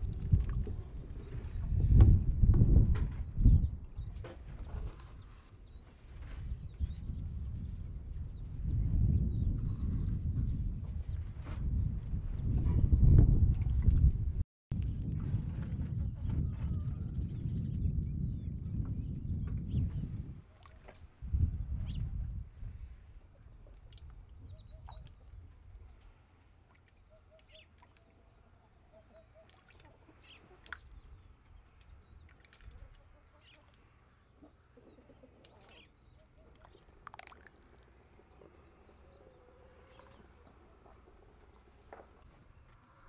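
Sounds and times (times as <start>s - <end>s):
wind buffeting microphone: 0.0s - 26.0s
distant bird chirps and calls: 24.4s - 25.4s, 27.0s - 43.0s.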